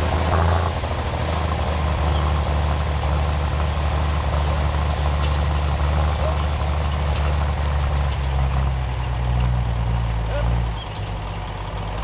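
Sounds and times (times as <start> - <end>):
tractor diesel engine under load: 0.0 - 12.0.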